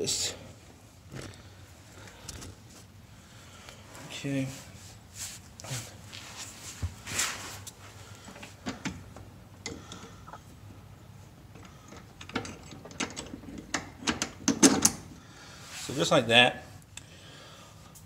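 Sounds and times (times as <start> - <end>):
metal parts clicking and knocking: 11.5 - 15.0.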